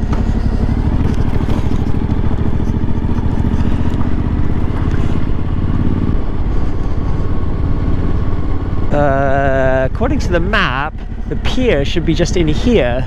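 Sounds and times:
tyres scraping on dirt road: 0.0s - 8.4s
motorcycle engine running: 0.0s - 13.0s.

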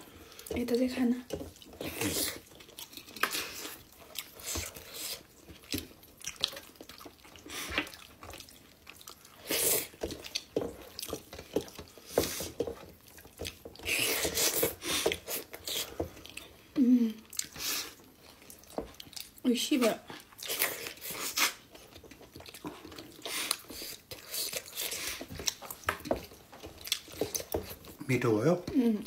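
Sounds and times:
wet chewing and lip smacks: 1.4s - 12.0s, 17.2s - 19.4s, 20.1s - 28.0s.

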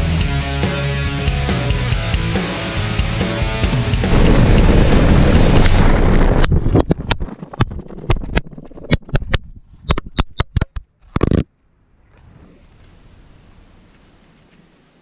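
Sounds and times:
bike riding noise: 2.4s - 9.4s.

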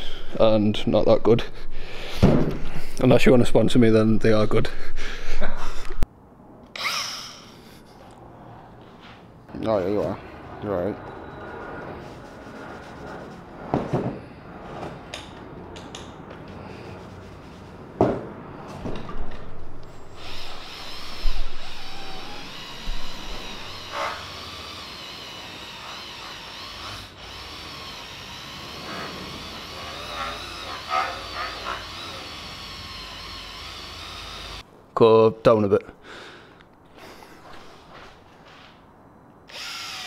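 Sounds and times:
polisher motor whine: 20.2s - 34.6s.

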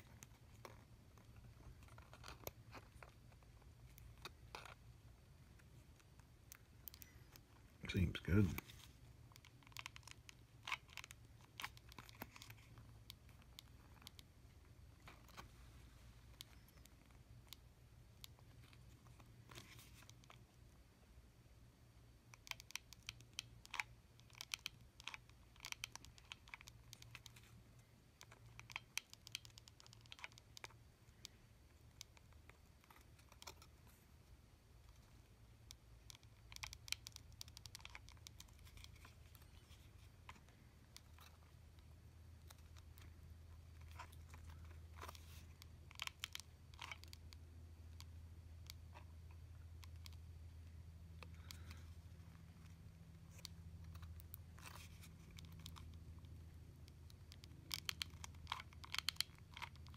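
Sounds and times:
low steady hum: 0.0s - 59.9s
faint clicks of small parts: 22.3s - 59.9s.

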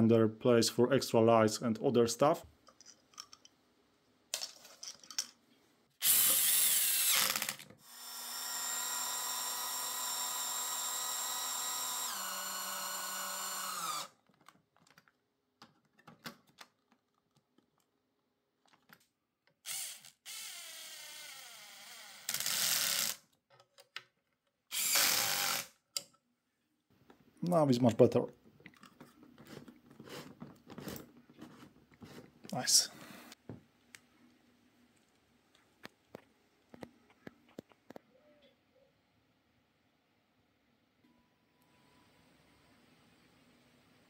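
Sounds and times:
cordless drill whining: 6.0s - 14.2s, 19.7s - 23.2s, 24.7s - 25.8s
small clicks and handling knocks: 14.2s - 18.0s, 18.6s - 19.6s, 23.4s - 24.6s.

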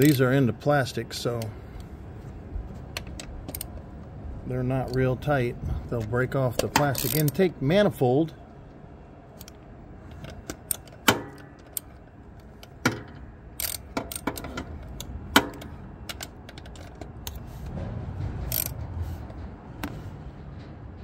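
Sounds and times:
socket ratchet clicking: 3.0s - 3.8s, 6.6s - 7.4s, 9.4s - 17.4s, 18.5s - 18.8s
low rumble: 17.0s - 21.0s.

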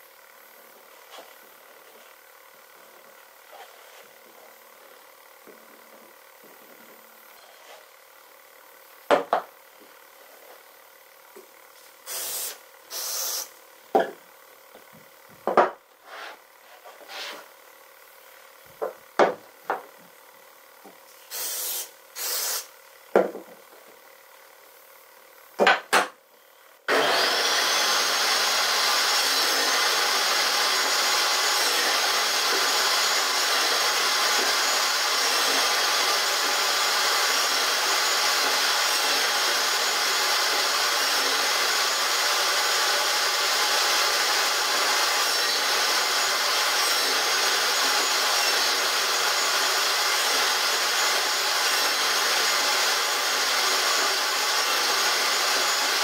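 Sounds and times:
table saw whirring: 11.8s - 13.6s, 21.1s - 22.7s, 26.9s - 56.0s.

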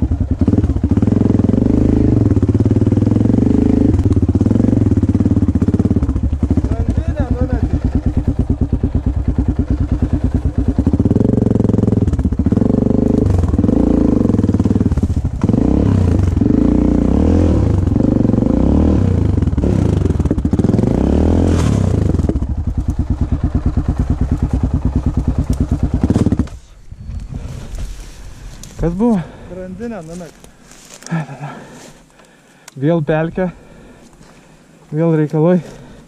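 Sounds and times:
motorcycle engine revving: 0.0s - 32.1s, 33.1s - 36.0s
person talking: 6.6s - 7.8s, 28.8s - 30.4s, 34.9s - 35.8s.

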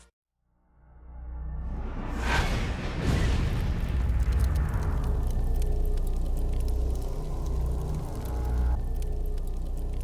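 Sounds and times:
whoosh: 1.7s - 4.5s
deep bass rumble: 3.4s - 10.0s.

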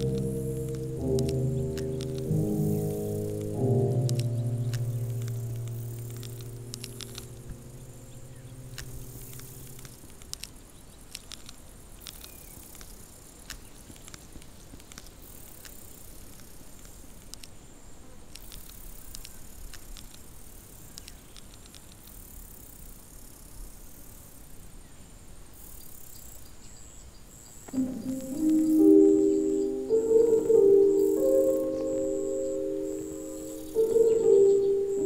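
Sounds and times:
low held music note: 0.0s - 9.9s, 27.8s - 35.0s
sharp clicks and crackles: 0.0s - 17.5s, 18.3s - 20.3s, 20.9s - 22.1s
faint hiss: 0.0s - 35.0s.

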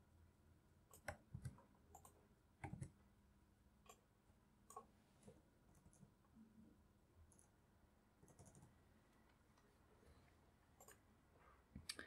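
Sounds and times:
faint mouse and keyboard clicking: 0.9s - 3.0s, 3.8s - 6.2s, 7.2s - 7.6s, 8.2s - 11.1s.

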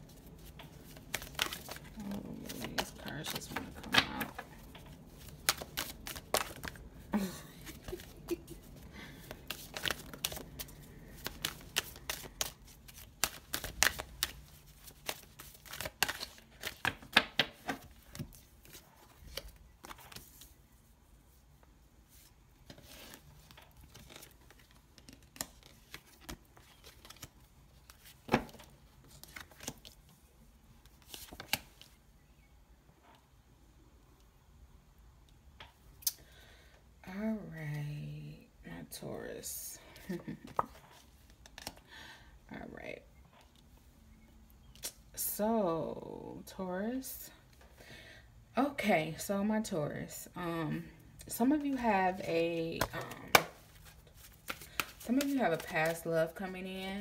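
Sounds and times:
cards being shuffled: 0.1s - 20.6s, 22.6s - 30.0s, 30.9s - 31.9s, 40.0s - 41.8s, 51.6s - 56.5s.

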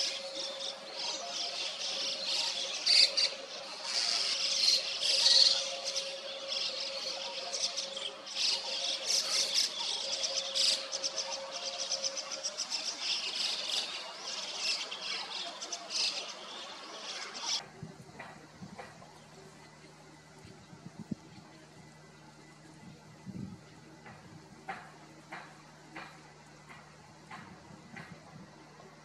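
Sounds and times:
flock of starlings chattering: 0.0s - 17.6s.

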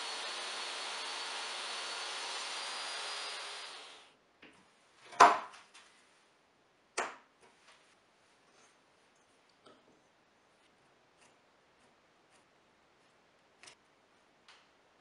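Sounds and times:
table saw motor running: 0.0s - 4.1s.

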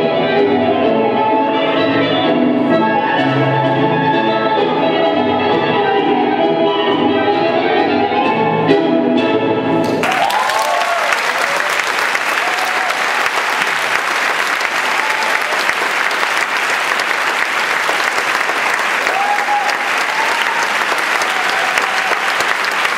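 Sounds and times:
audience applauding: 9.8s - 22.9s
cheers and whoops: 9.9s - 13.4s, 14.6s - 15.9s, 19.0s - 22.9s.

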